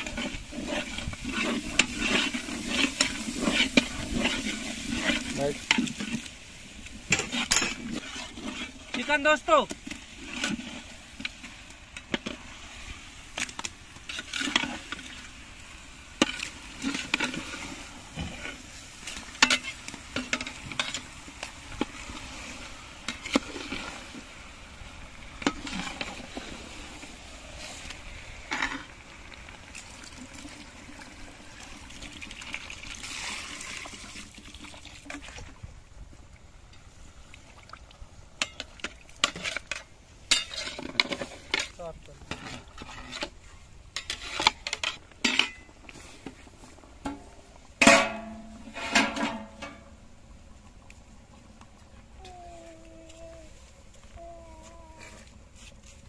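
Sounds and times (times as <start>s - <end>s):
metal spoon scraping a pot: 0.0s - 6.3s, 7.1s - 9.0s, 39.2s - 43.4s, 44.0s - 45.7s
chicken sizzling in a pot: 0.0s - 8.9s.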